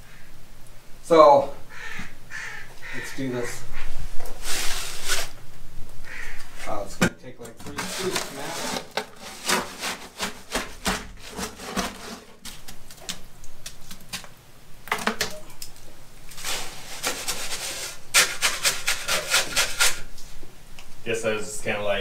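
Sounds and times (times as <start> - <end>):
shovel scraping wet concrete: 7.6 - 13.1, 16.3 - 20.1.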